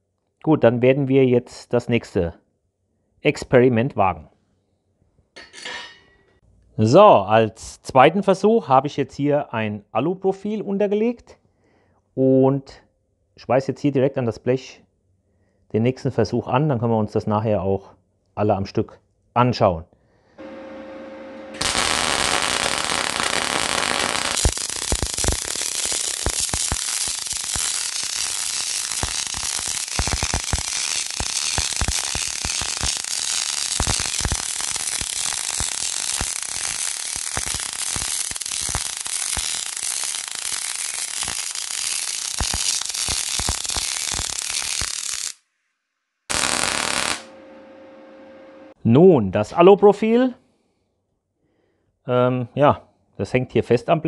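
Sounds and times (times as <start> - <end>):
welding arc crackling: 20.4 - 45.4, 46.3 - 47.5.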